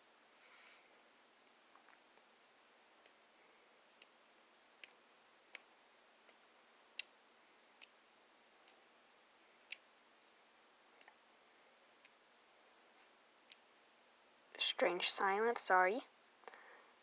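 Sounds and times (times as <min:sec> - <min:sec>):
paint spatter ticks: 0:03.9 - 0:08.0, 0:08.6 - 0:08.9, 0:09.5 - 0:11.2.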